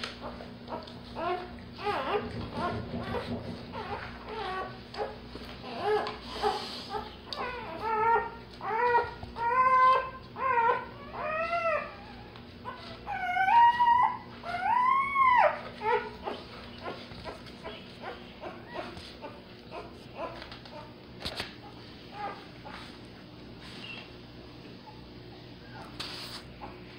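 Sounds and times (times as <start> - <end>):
puppy crying high squeals: 1.2 - 17.0, 22.1 - 22.4.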